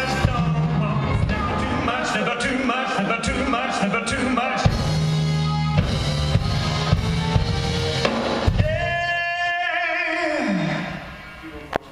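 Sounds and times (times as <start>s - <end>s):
live soul-pop band playing: 0.0s - 9.4s.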